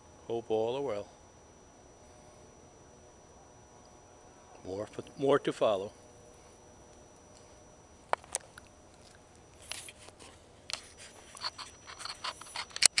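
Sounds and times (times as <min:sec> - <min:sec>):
camera handling clicks and rustles: 0:08.1 - 0:13.0.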